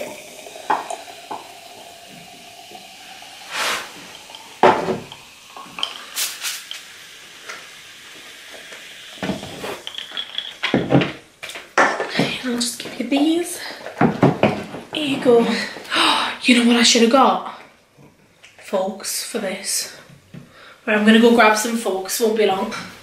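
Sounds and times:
soda fizzing hiss: 0.0 - 10.0.

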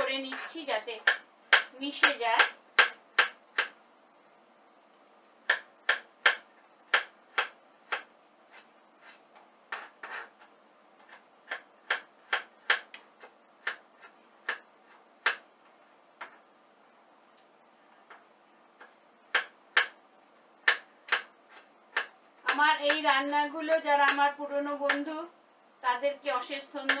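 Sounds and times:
knife chopping on cutting board: 11.0 - 12.9.

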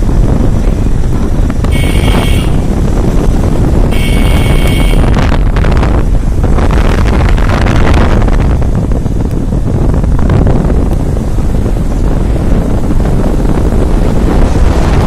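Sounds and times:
vehicle running noise: 0.0 - 15.0
wind buffeting microphone: 0.0 - 15.0.

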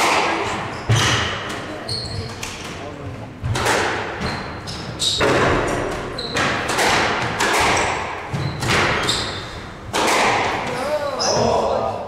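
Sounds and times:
squash ball hits: 0.0 - 1.8, 3.4 - 4.3, 5.1 - 11.5
shoes squeaking on wooden floor: 0.5 - 3.4, 4.1 - 6.7, 8.3 - 9.6.

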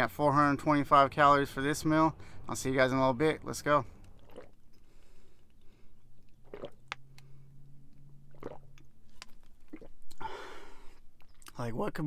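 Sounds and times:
low steady hum: 0.0 - 12.0
person gulping water: 4.0 - 7.3, 8.2 - 10.3.

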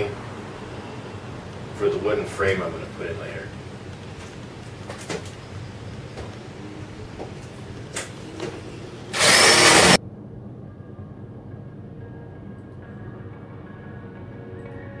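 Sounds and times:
faint clicks and handling knocks: 3.9 - 5.4
cordless drill boring into wood: 9.1 - 10.0.

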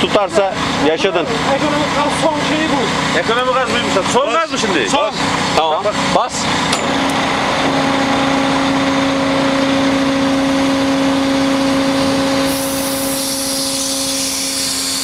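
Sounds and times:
excavator engine and hydraulic pump: 0.0 - 15.0
high hiss: 12.4 - 15.0.

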